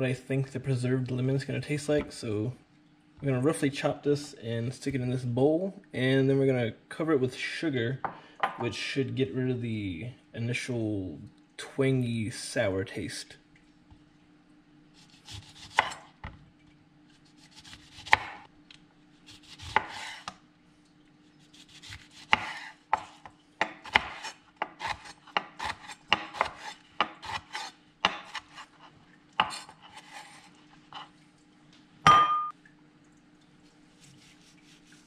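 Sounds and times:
knife slicing lemon: 15.0s - 16.1s, 17.4s - 18.5s, 19.3s - 20.4s, 21.5s - 30.5s
short ringing clink: 32.1s - 32.5s.

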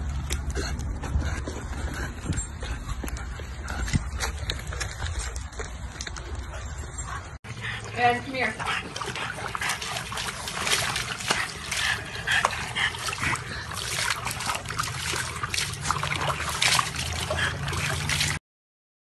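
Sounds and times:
water splashing in tub: 7.9s - 18.4s.

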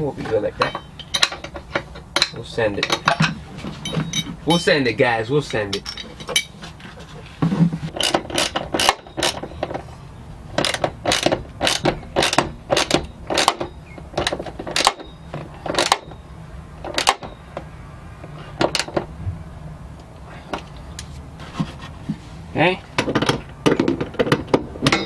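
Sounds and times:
socket ratchet clicking: 10.6s - 13.6s.

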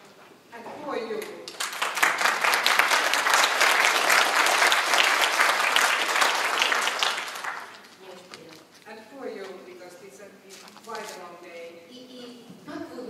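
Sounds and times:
audience applauding: 1.5s - 7.9s.

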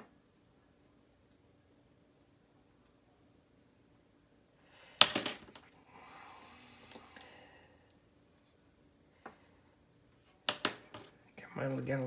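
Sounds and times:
soft hiss: 5.6s - 11.4s.

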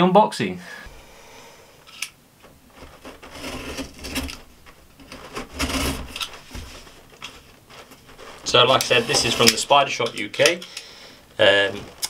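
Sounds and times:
knife scraping through cardboard: 2.8s - 7.0s, 8.0s - 9.7s.

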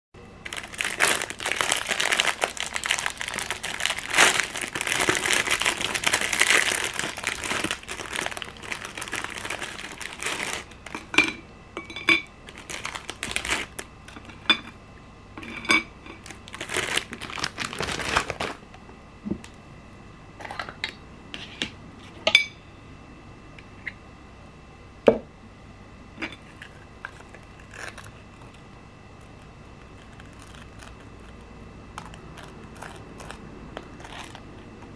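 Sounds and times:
plastic wrapper crinkling: 0.4s - 11.1s, 12.4s - 14.3s, 16.2s - 18.6s, 26.4s - 28.6s, 29.2s - 34.9s.

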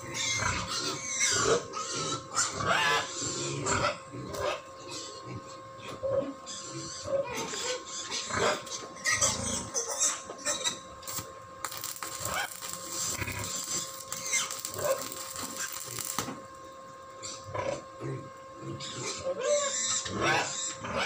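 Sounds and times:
arc welding crackling: 0.0s - 2.2s, 10.4s - 19.1s.

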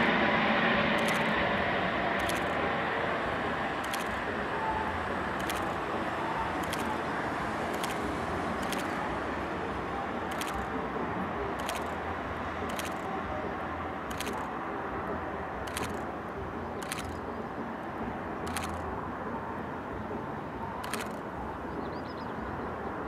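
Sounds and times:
helicopter flying overhead: 0.0s - 23.0s.

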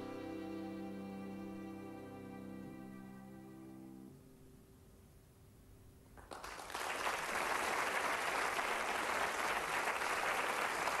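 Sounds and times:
audience applause: 6.2s - 11.0s.

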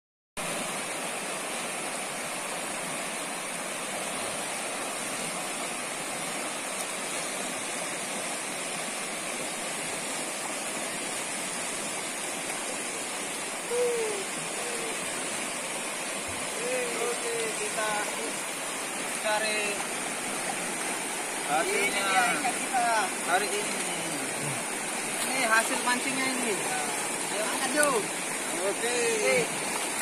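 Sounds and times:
river rushing over rapids: 0.4s - 30.0s
short voice sounds: 13.6s - 15.0s.

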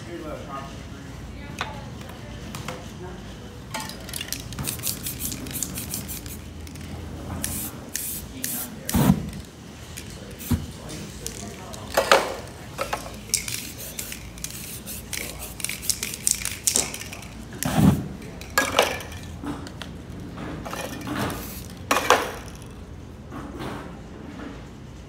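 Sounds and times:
cans and tools clinking: 3.7s - 8.6s, 9.3s - 19.8s, 20.6s - 22.8s
aerosol spray paint hissing: 4.5s - 6.8s, 7.4s - 8.8s, 13.0s - 17.1s, 21.2s - 21.8s.

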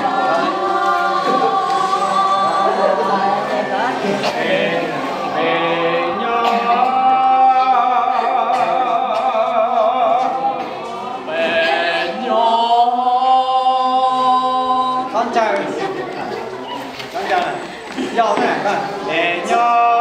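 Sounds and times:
group singing without instruments: 0.0s - 16.0s, 16.8s - 20.0s.

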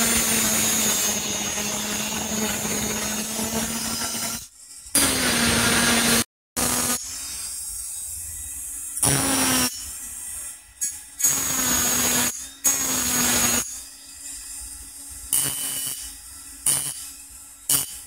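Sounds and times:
rotary tool grinding metal: 0.0s - 14.7s, 15.3s - 18.0s.

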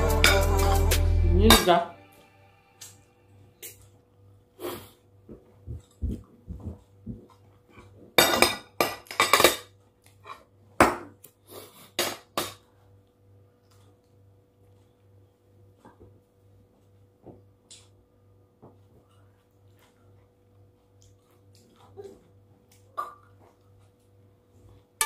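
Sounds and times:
cutlery clinking on a plate: 8.2s - 10.4s.

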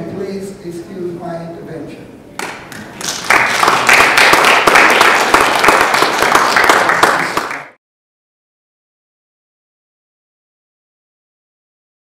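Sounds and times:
audience applauding: 2.4s - 7.8s.

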